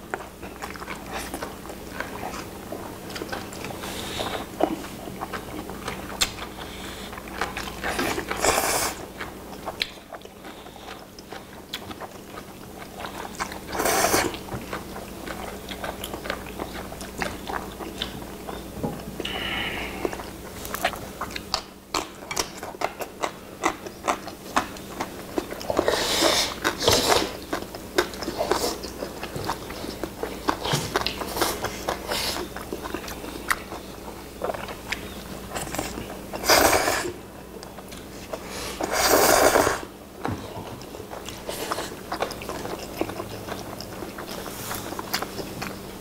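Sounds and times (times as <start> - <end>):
people chewing noodles: 0.0 - 46.0
loud noodle slurps: 38.8 - 39.9.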